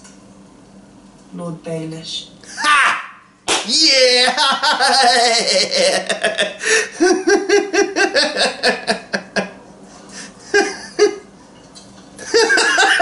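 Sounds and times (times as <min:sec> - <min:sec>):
man laughing: 0:02.5 - 0:09.6, 0:10.4 - 0:11.3, 0:12.2 - 0:13.0
man chuckling: 0:03.9 - 0:09.6, 0:10.2 - 0:11.3, 0:12.2 - 0:13.0.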